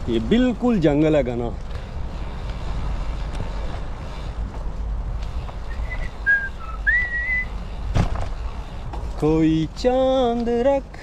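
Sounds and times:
bicycle riding rumble: 0.0 - 11.0
person whistling a tune: 5.7 - 7.5.

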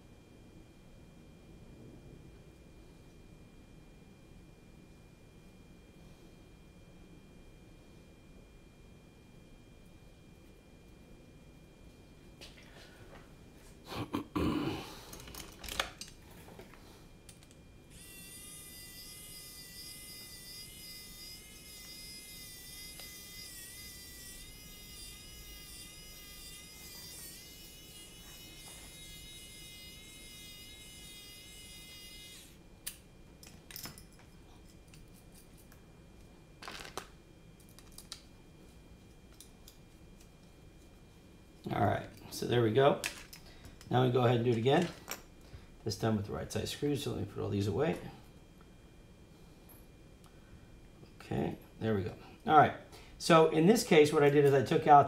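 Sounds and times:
high multi-tone whine: 0.0 - 55.0
small parts clicking and knocking: 15.1 - 17.6, 36.6 - 38.2, 43.0 - 43.9.

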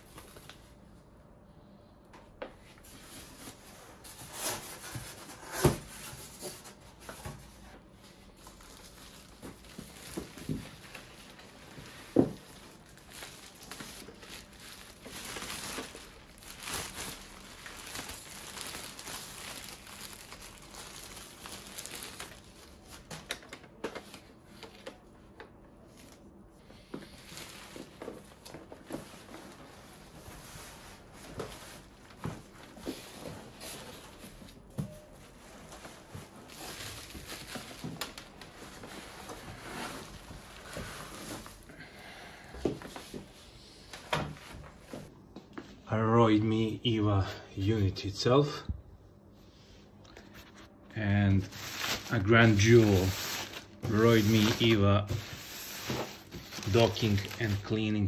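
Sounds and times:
plastic bag crinkling: 8.3 - 24.2, 27.1 - 33.2, 35.4 - 41.7, 51.4 - 57.8.

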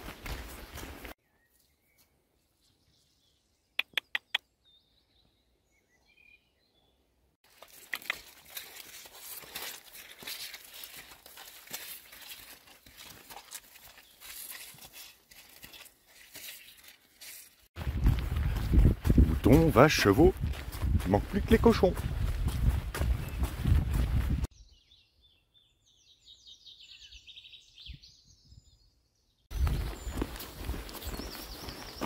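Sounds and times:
quick clicks: 3.8 - 4.4
plastic cape crinkling: 8.2 - 17.7.

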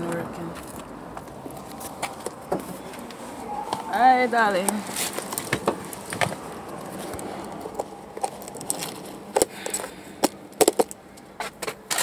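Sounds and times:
handling clicks and knocks: 5.1 - 12.0.

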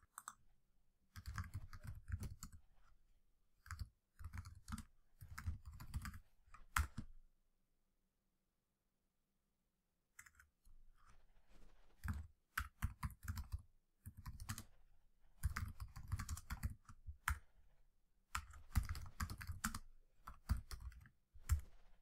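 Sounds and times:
typing on computer keyboard: 1.1 - 2.6, 3.6 - 7.1, 12.0 - 14.7, 15.4 - 17.4, 18.3 - 21.7.

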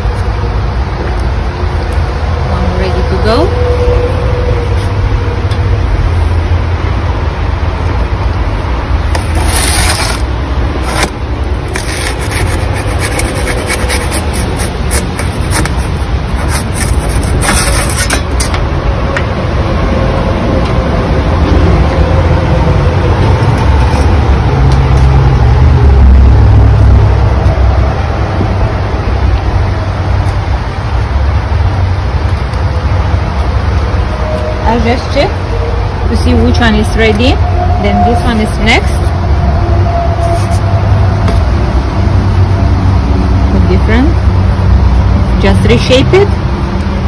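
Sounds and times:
low rumble: 0.0 - 47.0
bread peel scraping oven floor: 9.1 - 18.5.

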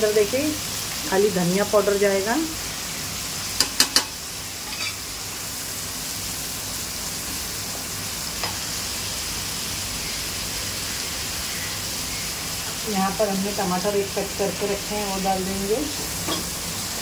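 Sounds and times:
onions sizzling in oil: 0.0 - 17.0
spatula stirring in pan: 3.5 - 5.1.

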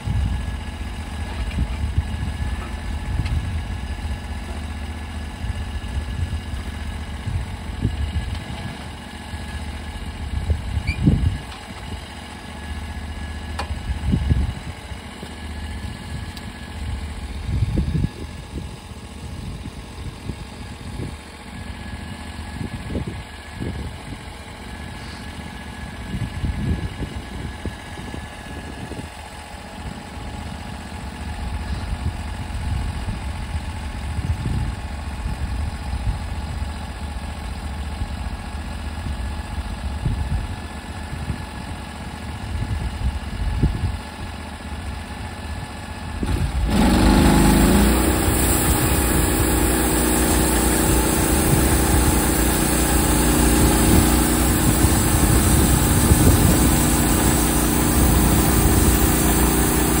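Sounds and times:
gasoline engine revving: 46.2 - 60.0.

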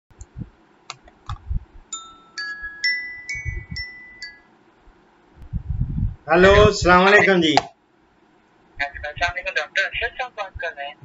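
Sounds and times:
bell-like chime notes: 2.0 - 4.5.

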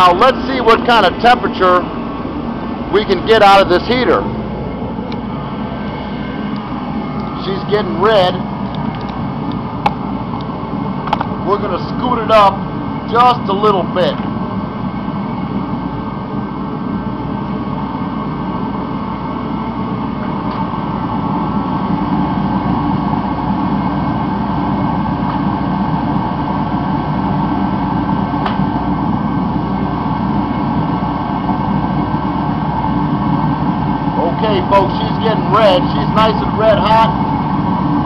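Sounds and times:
heater blower and burner rush: 0.0 - 38.0.

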